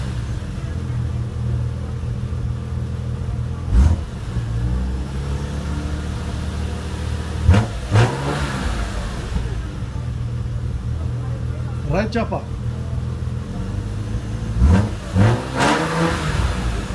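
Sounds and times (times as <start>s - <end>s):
car exhaust idling: 0.0s - 16.9s
engine revving blips: 7.4s - 9.6s, 14.4s - 16.9s.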